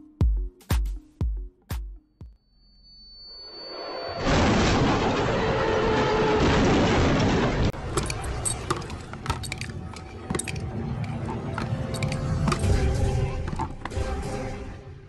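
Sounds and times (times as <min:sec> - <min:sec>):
loud crash noise: 0:04.2 - 0:07.8.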